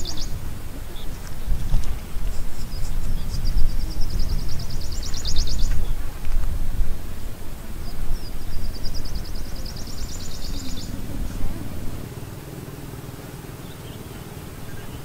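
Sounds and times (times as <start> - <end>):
small bird trilling: 0.0 - 0.4
wind rumble on microphone: 0.0 - 15.0.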